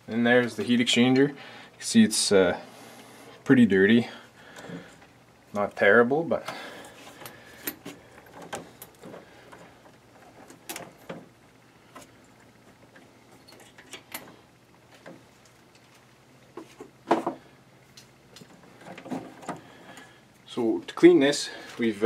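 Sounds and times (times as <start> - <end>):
knocks and rattles of parts: 6.4 - 17.4, 18.3 - 20.1.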